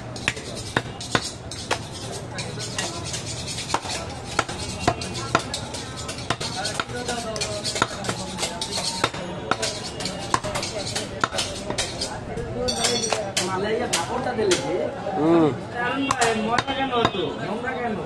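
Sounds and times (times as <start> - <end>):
knife chopping on wooden block: 0.2 - 2.0, 2.7 - 12.1.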